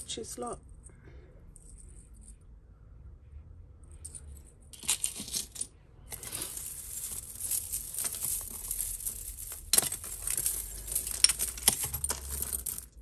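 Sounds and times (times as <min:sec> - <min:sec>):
jewellery clinking and jingling: 0:03.8 - 0:13.0.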